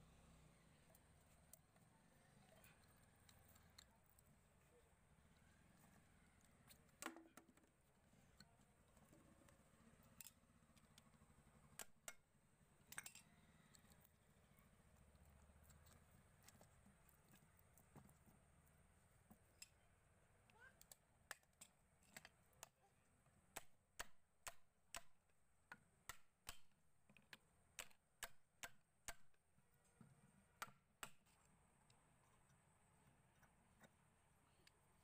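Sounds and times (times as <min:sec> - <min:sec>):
faint metallic clicks and taps: 0:23.5 - 0:34.9.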